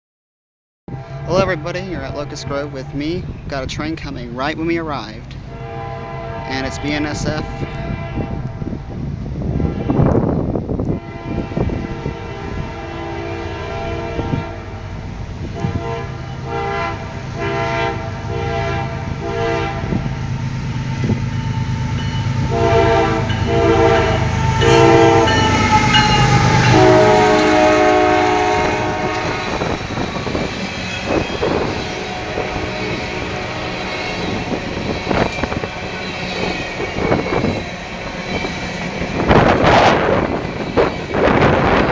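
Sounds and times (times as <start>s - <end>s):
locomotive air horn: 0.9s - 3.0s, 5.5s - 8.8s, 9.5s - 10.3s, 10.9s - 14.7s, 15.4s - 37.6s
locomotive engine rumble: 0.9s - 41.9s.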